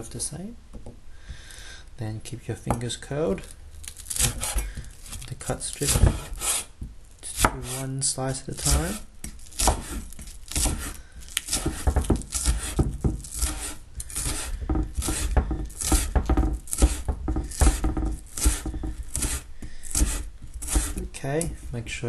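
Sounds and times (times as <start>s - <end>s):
knife chopping on cutting board: 4.2s - 4.7s, 5.8s - 6.7s, 7.4s - 7.8s, 8.6s - 21.5s.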